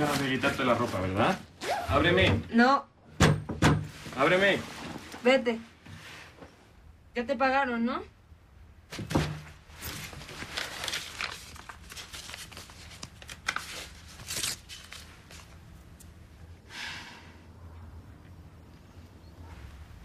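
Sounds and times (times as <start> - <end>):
paper banknote crinkling: 9.8 - 16.2
short breathy hiss: 16.6 - 17.5.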